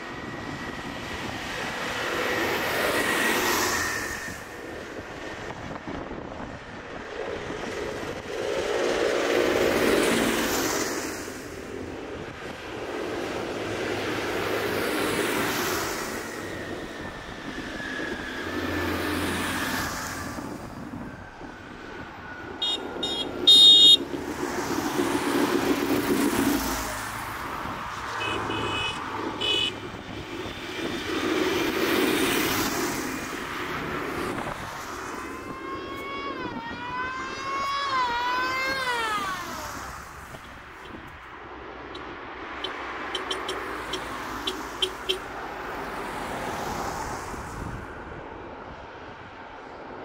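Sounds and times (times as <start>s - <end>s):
classic car engines passing: 0.0s - 35.6s, 38.8s - 49.6s
tractor engines passing: 0.0s - 50.0s
horns tooting: 22.6s - 24.1s, 28.0s - 29.9s, 42.0s - 45.3s.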